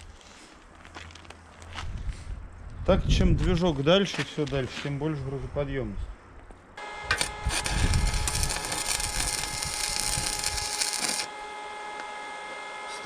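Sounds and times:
arc welding crackling hiss: 6.8s - 12.1s
steady high whine: 6.8s - 13.0s.

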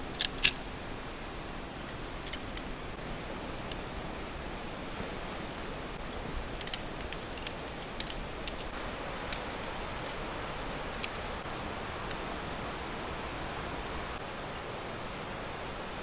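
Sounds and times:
tent pole sections clicking: 0.0s - 0.6s, 1.9s - 2.7s, 6.0s - 12.3s
river rushing over rocks: 0.6s - 16.0s.

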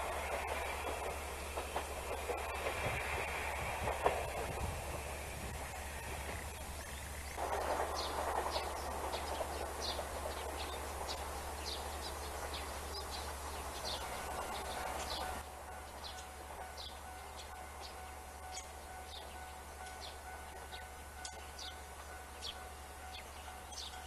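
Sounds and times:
diesel railcar running: 0.0s - 24.0s
outdoor background noise: 0.0s - 24.0s
small birds chirping: 5.6s - 24.0s.

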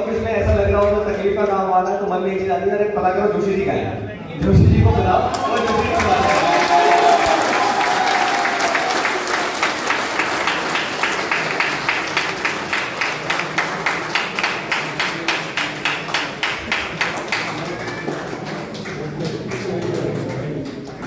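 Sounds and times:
audience clapping in rhythm: 0.0s - 1.7s, 5.2s - 21.0s.

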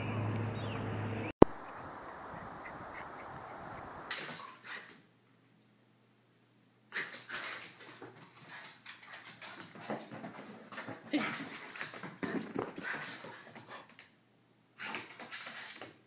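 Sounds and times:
scuffling: 7.0s - 14.1s.

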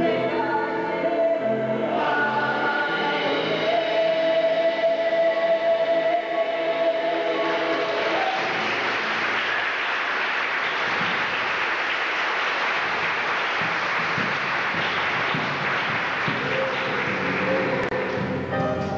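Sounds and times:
music: 0.0s - 18.9s
audience applauding: 7.4s - 18.9s.

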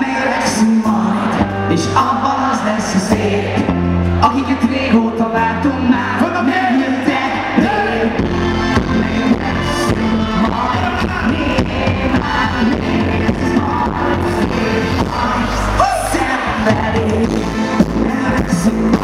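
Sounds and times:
live pop band playing: 0.0s - 19.0s
person singing: 4.2s - 19.0s.

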